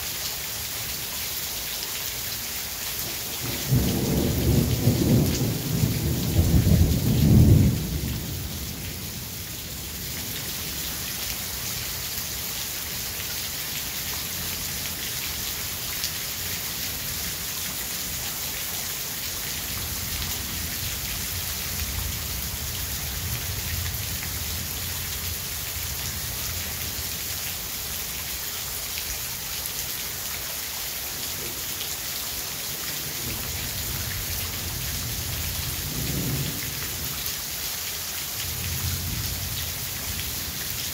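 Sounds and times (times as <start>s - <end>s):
steady rain hissing: 0.0s - 40.9s
thunder rumbling: 3.5s - 9.2s.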